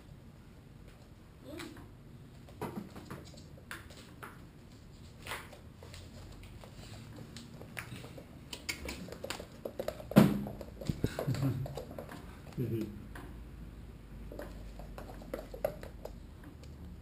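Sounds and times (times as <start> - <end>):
dog claws clicking on floor: 5.2 - 12.6.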